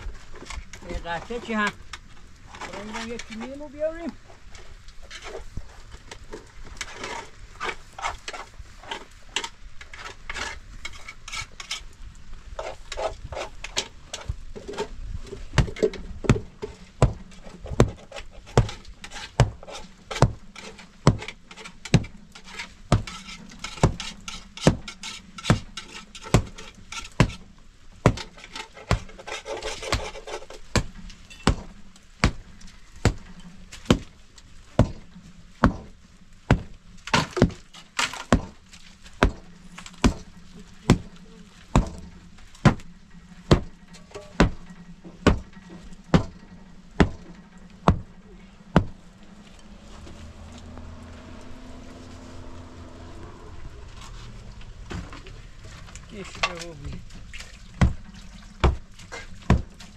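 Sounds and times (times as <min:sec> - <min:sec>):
hard knocks: 0:46.1 - 0:46.4, 0:47.0 - 0:48.1, 0:48.7 - 0:49.0, 0:57.8 - 0:59.8.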